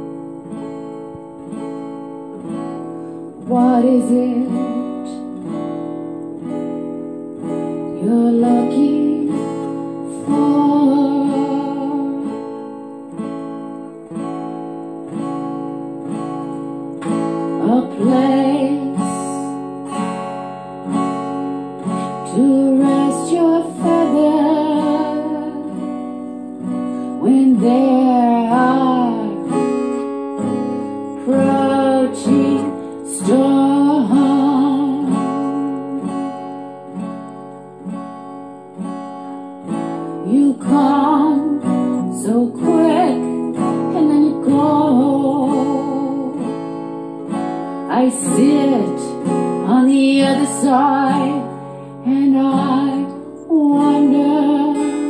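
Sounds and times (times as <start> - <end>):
acoustic guitar strummed: 0.0 - 55.0
woman singing: 2.4 - 5.8, 7.4 - 13.1, 17.2 - 20.3, 21.8 - 36.7, 39.8 - 55.0.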